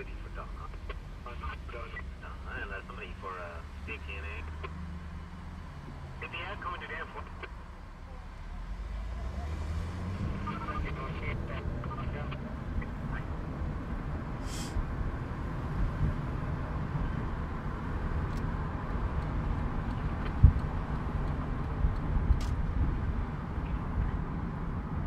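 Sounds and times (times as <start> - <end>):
road and engine rumble: 0.0 - 25.0
brief hisses: 14.4 - 14.8.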